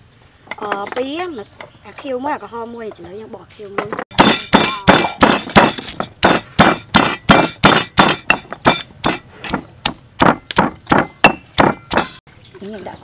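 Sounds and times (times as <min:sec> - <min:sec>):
stone pestle pounding in mortar: 0:03.8 - 0:12.2.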